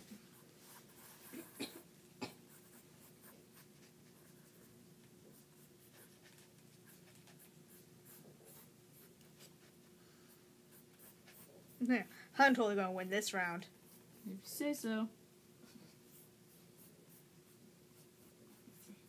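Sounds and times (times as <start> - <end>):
faint steady hum: 0.0 - 19.0
pens scratching on paper: 0.2 - 1.6, 2.5 - 12.0, 16.0 - 19.0.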